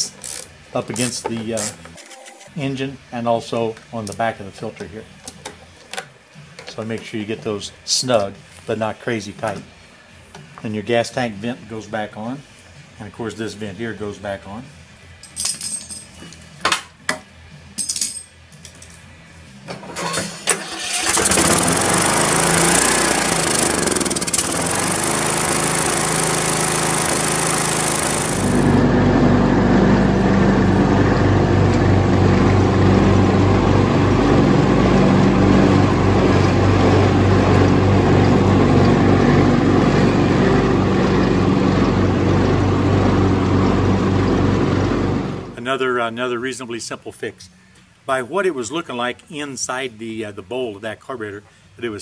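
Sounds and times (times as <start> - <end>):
riding mower engine running: 20.0 - 45.6.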